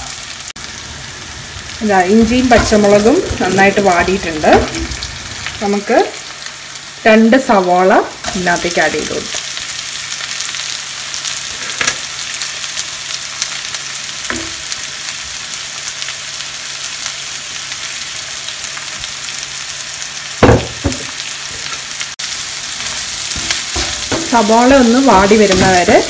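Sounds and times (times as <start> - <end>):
onions sizzling in hot oil: 0.0 - 26.0
knocks against pan: 20.4 - 21.1.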